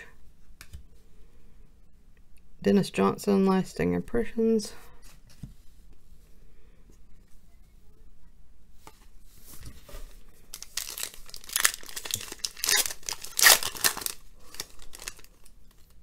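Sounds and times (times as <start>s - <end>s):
foil wrapper tearing and crinkling: 10.5s - 16.0s.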